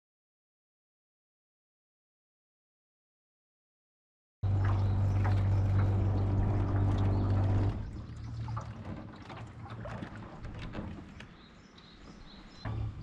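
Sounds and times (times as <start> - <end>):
boat motor humming: 4.4 - 13.0
water splashing and trickling: 4.4 - 13.0.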